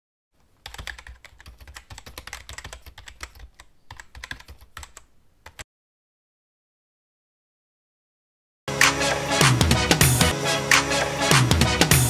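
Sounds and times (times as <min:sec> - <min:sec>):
computer keyboard typing: 0:00.5 - 0:05.6.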